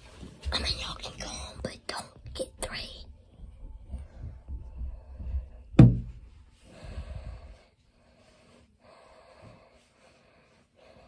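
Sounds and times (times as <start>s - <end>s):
person breathing close to microphone: 3.9s - 11.0s
thump: 5.8s - 6.2s.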